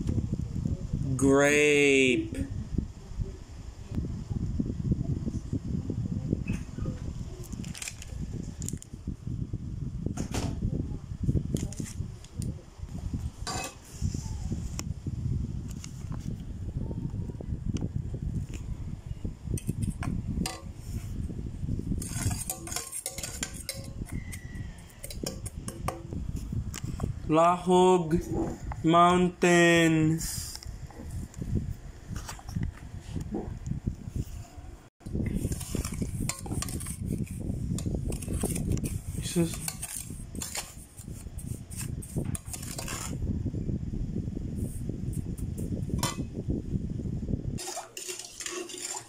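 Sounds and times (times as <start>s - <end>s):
metal spatula scraping a pot: 22.0s - 25.9s, 35.4s - 43.2s, 47.6s - 49.0s.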